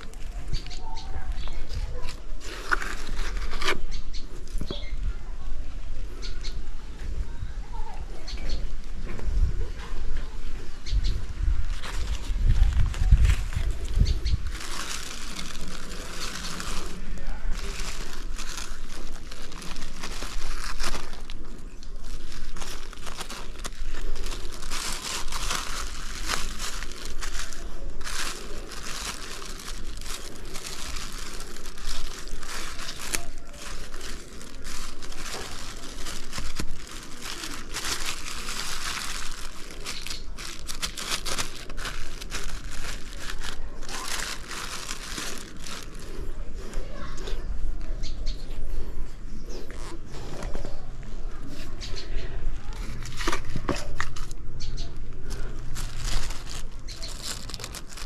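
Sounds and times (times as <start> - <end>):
plastic bag crinkling: 0.0 - 4.0, 11.6 - 47.0, 52.6 - 54.4, 55.1 - 58.0.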